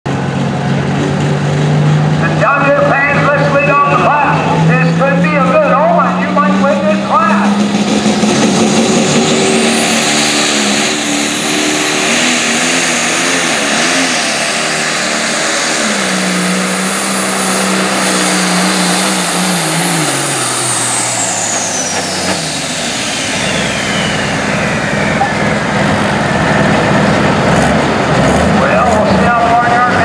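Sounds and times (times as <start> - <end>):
diesel tractor engine at full power: 0.0 - 30.0
high turbocharger whistle: 3.8 - 27.0.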